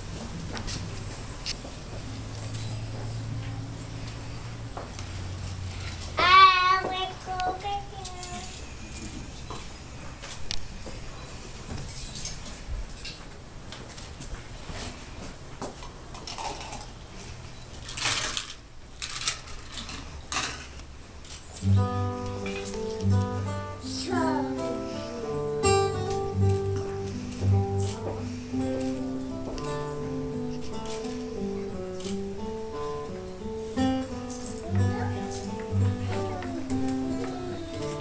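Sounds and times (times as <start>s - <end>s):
rustles: 10.0s - 38.0s
plucked string instrument music: 21.6s - 38.0s
crowd murmuring: 21.8s - 31.7s, 34.5s - 38.0s.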